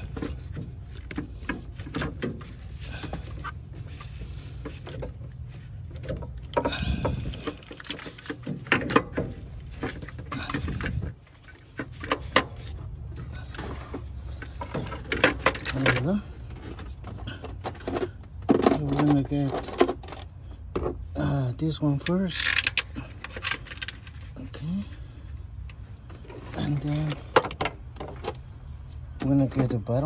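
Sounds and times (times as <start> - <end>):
steady low hum: 0.0 - 30.0
metal clicks and knocks: 5.9 - 21.0, 26.8 - 28.4.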